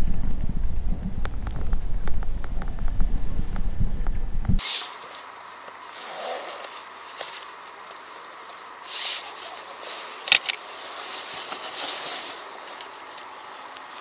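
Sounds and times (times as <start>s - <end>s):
rustling of dry grass and clothing: 0.0s - 14.0s
sharp click: 10.3s - 10.6s.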